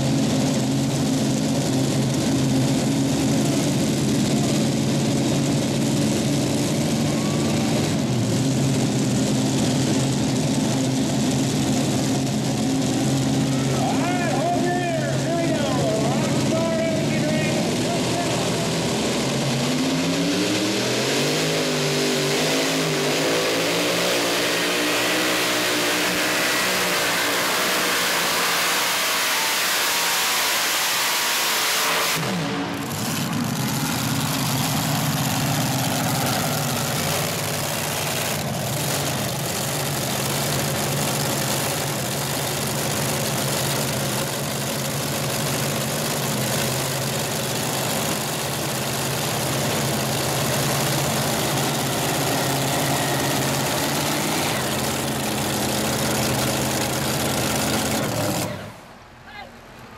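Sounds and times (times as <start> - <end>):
low engine rumble: 0.0 - 20.3, 32.2 - 59.9
pulling tractor engine at full throttle: 0.0 - 59.2.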